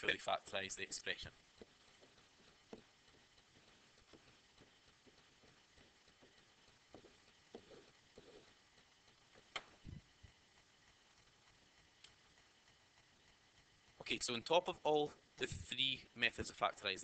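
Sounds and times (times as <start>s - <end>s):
stylus tapping on pen screen: 1.6s - 8.5s.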